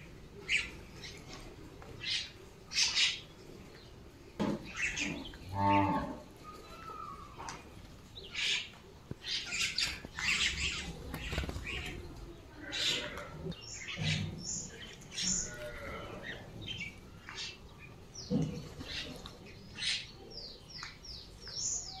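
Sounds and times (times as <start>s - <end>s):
mynas and crows calling: 4.6s - 10.9s, 12.5s - 19.2s.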